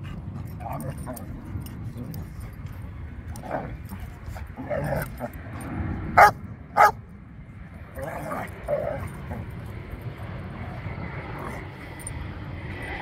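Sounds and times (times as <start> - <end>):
dogs barking: 6.2 - 7.0.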